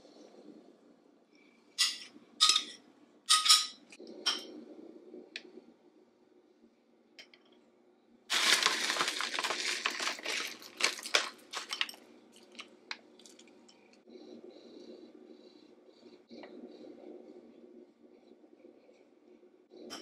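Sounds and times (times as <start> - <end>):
granola pouring into glass bowl: 8.3 - 13.4
plastic bag crinkling: 8.3 - 13.6.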